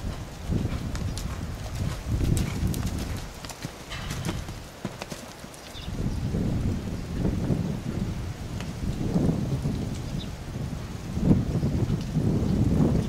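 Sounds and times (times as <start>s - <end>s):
horse hoofbeats on sand: 0.0s - 5.9s.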